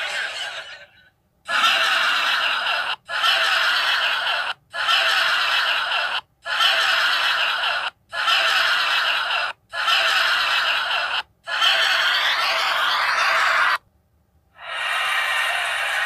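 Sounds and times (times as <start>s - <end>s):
harsh hissy noise: 14.6s - 16.0s.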